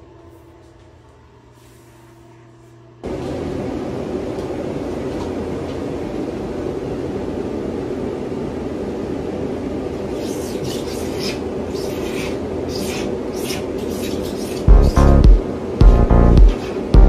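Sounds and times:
steady machine noise: 9.7 - 17.0.

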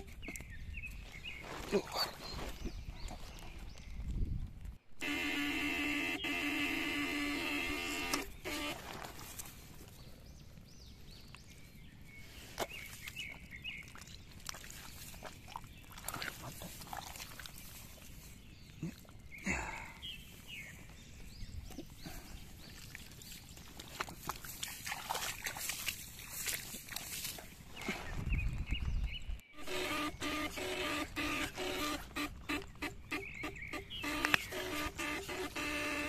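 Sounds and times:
electric buzzing tone: 5.0 - 9.2, 29.6 - 36.0
wet mud squelching and scraping: 11.6 - 19.4, 20.1 - 29.0.

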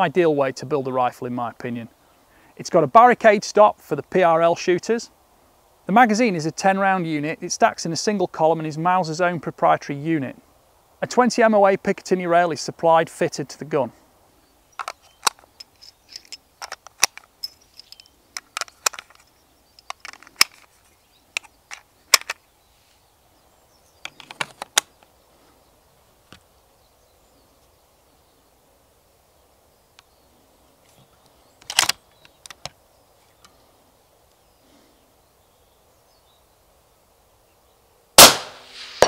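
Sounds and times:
cartridges clicking into magazine: 31.6 - 32.7.

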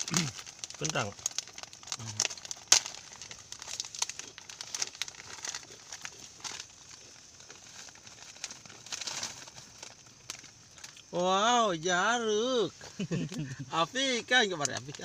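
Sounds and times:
plastic snack packet crinkling: 0.0 - 11.2, 14.4 - 15.0.

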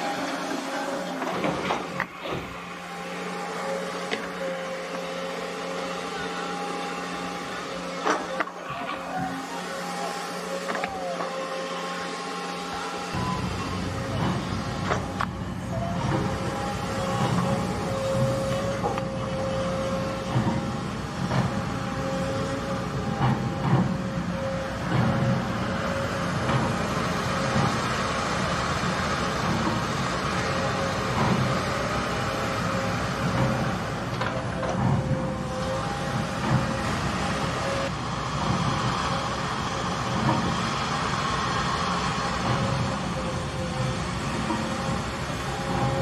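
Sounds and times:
excavator engine and hydraulics: 0.0 - 46.0
steady whine: 0.0 - 46.0.

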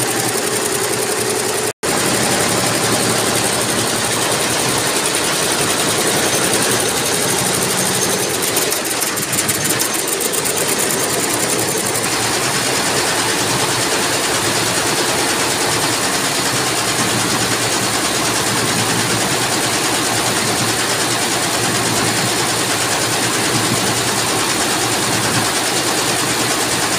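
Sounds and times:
fast even ticking: 0.0 - 18.4
embroidery machines clattering: 0.0 - 26.9.

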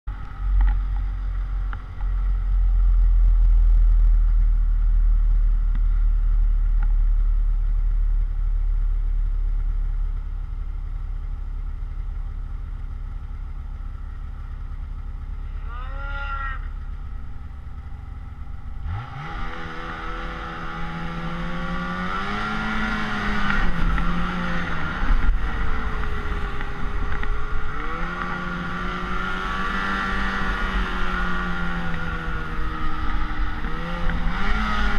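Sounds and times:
snowmobile engine running: 13.2 - 34.9.

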